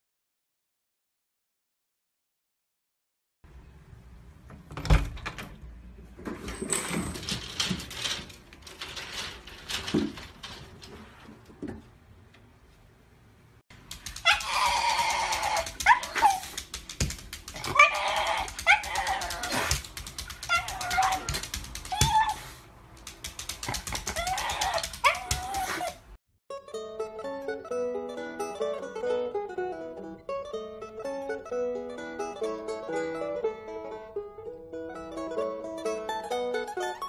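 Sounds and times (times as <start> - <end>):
dog crying high-pitched: 14.1 - 16.6, 17.6 - 22.6, 23.9 - 26.0.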